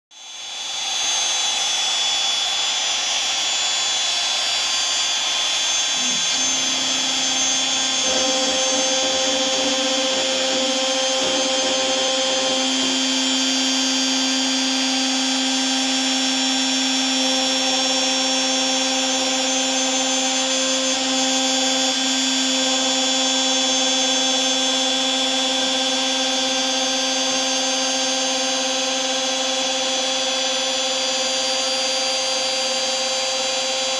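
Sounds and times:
router whining: 0.2s - 33.9s
lower steady machine hum: 5.9s - 19.8s.

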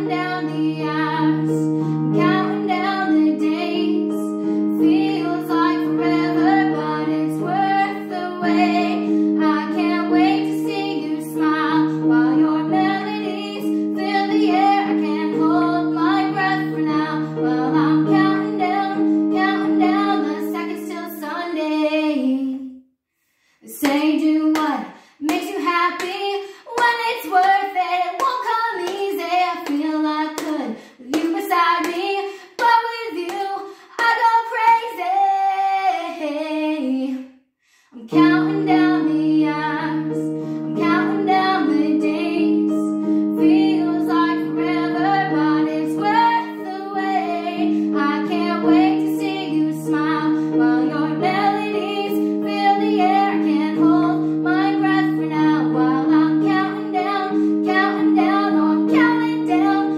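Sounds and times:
digital keyboard accompaniment: 0.0s - 21.0s, 38.1s - 59.9s
woman singing: 0.0s - 22.8s, 23.6s - 37.3s, 37.9s - 59.9s.

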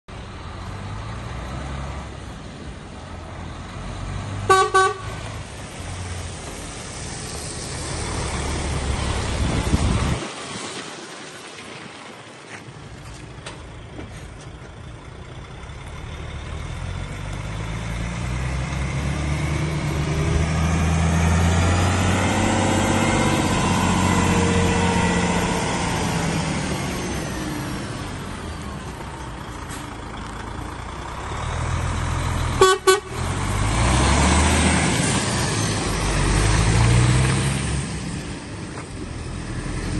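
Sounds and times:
truck horn toots: 4.5s - 5.2s, 32.6s - 33.4s
diesel truck engine running: 12.8s - 39.9s.

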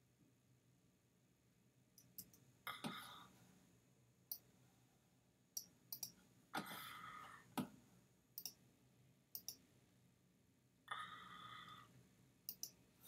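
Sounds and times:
computer mouse clicks: 2.0s - 2.4s, 5.6s - 6.2s, 8.4s - 8.6s, 9.3s - 9.6s, 12.5s - 12.8s.

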